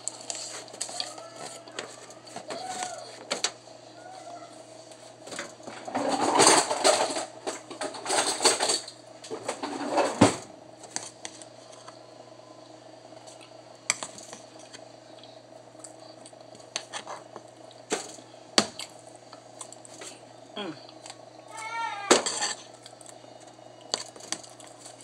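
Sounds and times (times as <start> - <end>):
cornstarch rustling and crunching: 0.0 - 3.2
faint steady hum: 0.0 - 25.0.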